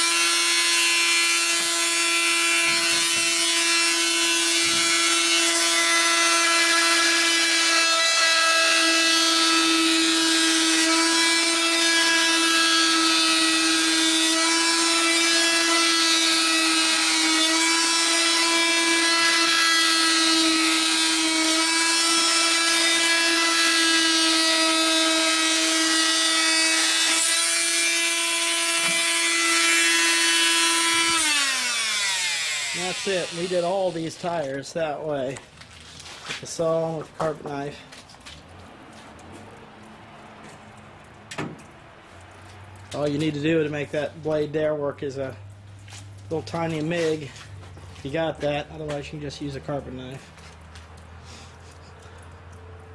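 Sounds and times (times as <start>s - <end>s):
multi-tool buzzing through tire: 0.0s - 34.4s.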